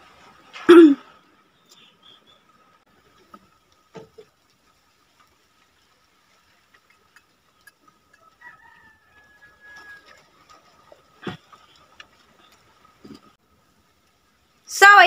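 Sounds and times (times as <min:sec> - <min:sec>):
faint chicken calls: 0:08.0 - 0:12.5.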